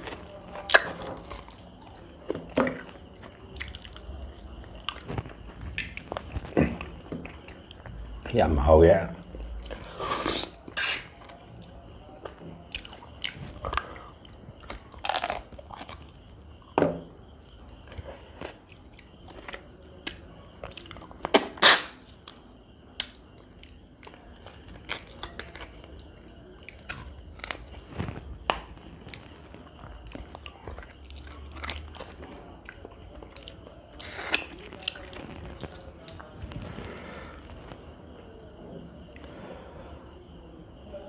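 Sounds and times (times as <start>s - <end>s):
man biting and chewing: 9.6s - 11.4s, 12.7s - 16.0s
wet mouth clicks: 10.2s - 11.1s.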